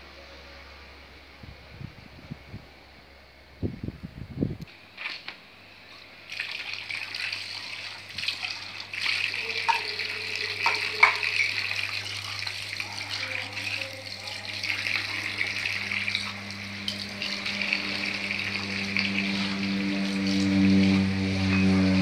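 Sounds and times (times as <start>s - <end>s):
propeller drone: 13.9s - 22.0s.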